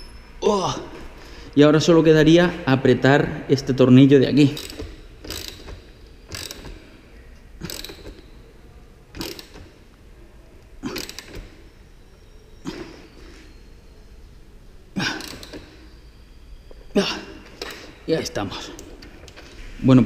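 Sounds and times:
ratchet wrench clicking: 4.5s - 6.8s, 7.6s - 8.3s, 9.2s - 9.7s, 11.0s - 11.5s, 15.2s - 15.7s.

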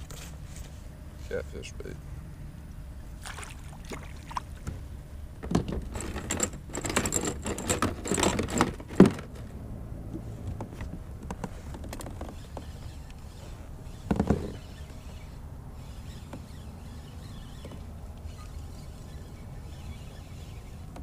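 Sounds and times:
gear rattling and rubbing: 5.4s - 9.4s, 11.3s - 21.0s.

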